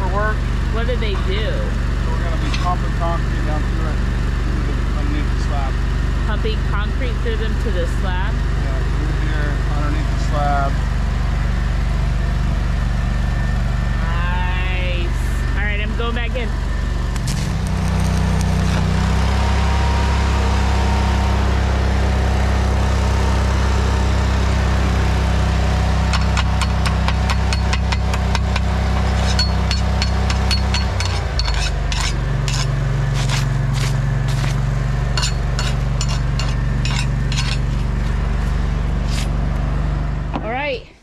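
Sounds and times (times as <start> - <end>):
welding machine drone: 0.0 - 40.6
welding arc crackling: 16.8 - 39.3.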